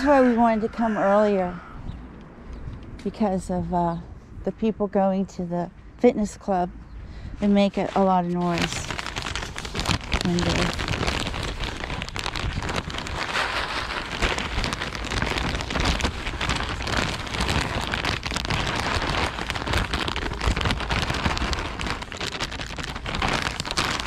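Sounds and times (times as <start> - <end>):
wind on microphone: 0.0 - 4.9, 6.9 - 24.0.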